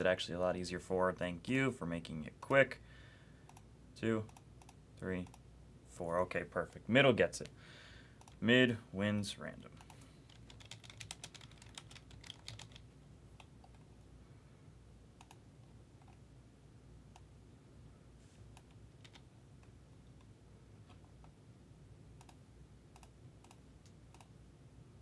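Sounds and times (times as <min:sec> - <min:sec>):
low room hum: 0:00.0 - 0:25.0
keyboard typing: 0:09.8 - 0:13.8, 0:18.6 - 0:19.3.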